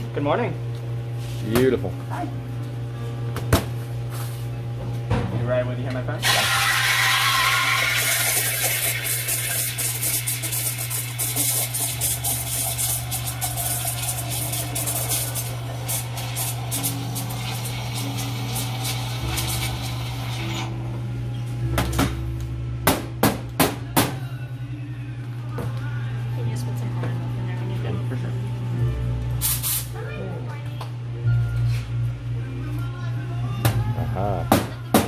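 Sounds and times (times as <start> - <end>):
steam wand hissing frothing milk: 6.2 - 20.6.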